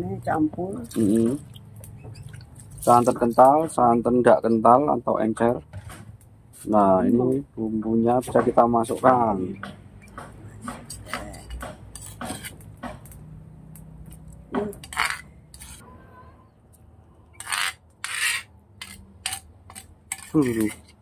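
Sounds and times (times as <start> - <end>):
metal ladle scraping stone mortar: 10.8 - 13.2, 14.6 - 15.9, 17.3 - 21.0.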